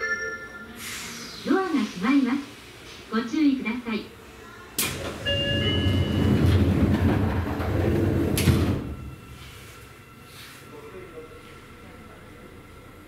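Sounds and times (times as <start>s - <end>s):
air hiss: 0.8s - 3.1s
train doors rumbling: 4.7s - 10.0s
doors shutting thud: 6.3s - 9.1s.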